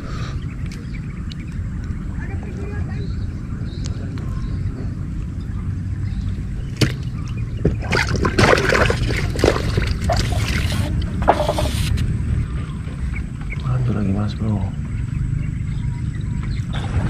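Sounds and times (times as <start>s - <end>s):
steady low rumble: 0.0s - 17.0s
water splashing in bucket: 6.8s - 11.9s.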